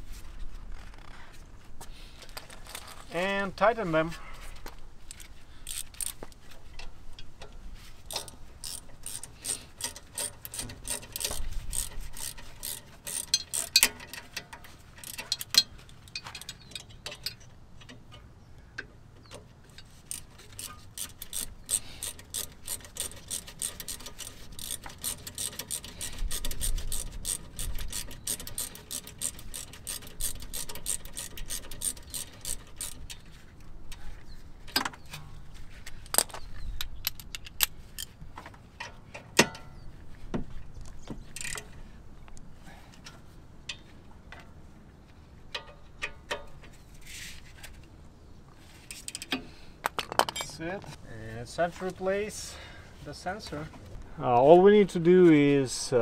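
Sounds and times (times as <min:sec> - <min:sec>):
ratchet wrench clicking: 0:05.6 - 0:06.2, 0:08.1 - 0:14.3, 0:15.0 - 0:17.4, 0:19.8 - 0:33.2.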